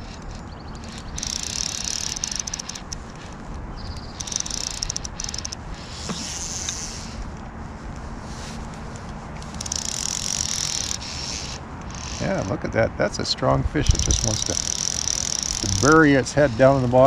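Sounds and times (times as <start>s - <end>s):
fishing reel drag clicking: 0.0s - 7.2s, 9.4s - 12.4s, 13.9s - 16.2s.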